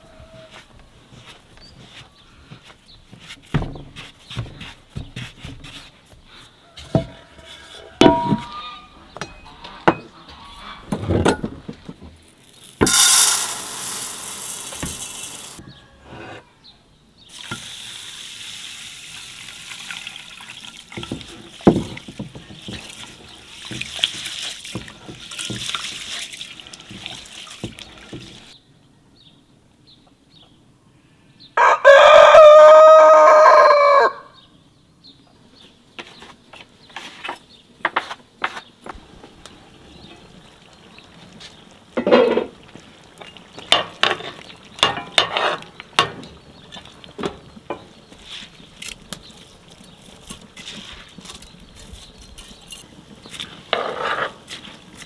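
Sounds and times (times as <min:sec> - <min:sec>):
hand stirring rice in a bowl: 0:20.9 - 0:28.5
rooster crowing: 0:31.6 - 0:34.4.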